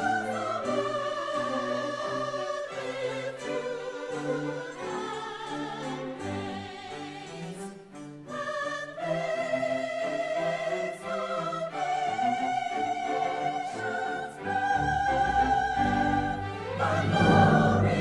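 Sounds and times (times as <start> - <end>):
operatic singing voice: 0.0 - 7.7, 8.3 - 18.0
orchestral holiday music: 0.0 - 18.0.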